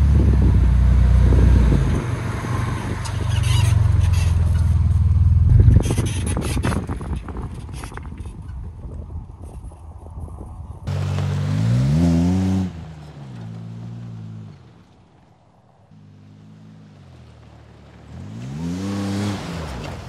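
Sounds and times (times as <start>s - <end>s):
truck engine revving: 10.9s - 15.0s, 15.9s - 20.0s.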